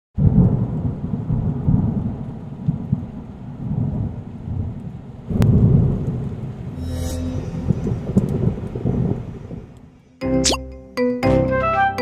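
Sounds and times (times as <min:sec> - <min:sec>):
rain: 0:00.2 - 0:06.8, 0:07.5 - 0:10.2
thunder rumbling: 0:00.2 - 0:10.0
sharp thunder crack: 0:07.6 - 0:09.8.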